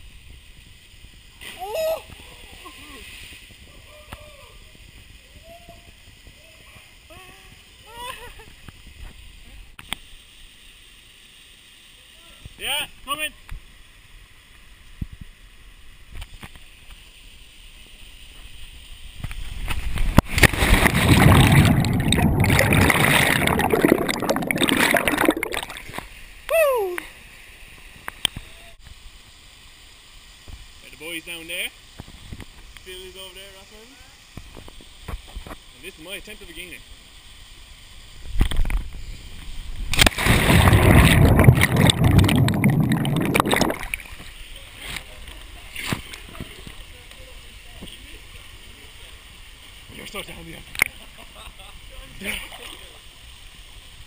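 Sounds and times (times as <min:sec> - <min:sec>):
underwater rush of water and bubbles: 0:19.5 - 0:26.3, 0:38.5 - 0:45.1
sharp splash: 0:20.0 - 0:26.0, 0:39.9 - 0:44.3.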